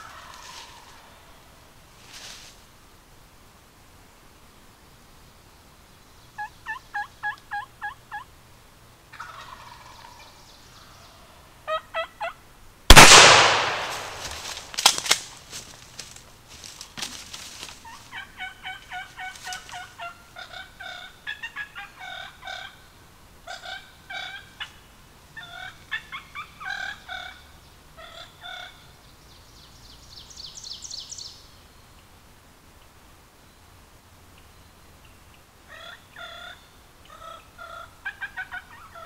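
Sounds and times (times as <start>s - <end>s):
wild turkeys calling: 0.0s - 1.4s, 6.4s - 8.3s, 9.1s - 14.9s, 16.8s - 24.8s, 25.4s - 28.9s, 35.0s - 39.0s.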